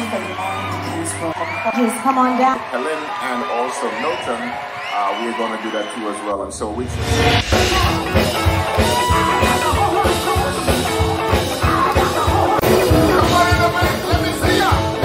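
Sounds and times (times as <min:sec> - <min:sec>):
upbeat band music: 0:00.0 - 0:02.8, 0:03.7 - 0:15.0
guitar: 0:07.0 - 0:15.0
drum beat: 0:07.1 - 0:15.0
person singing: 0:07.5 - 0:15.0.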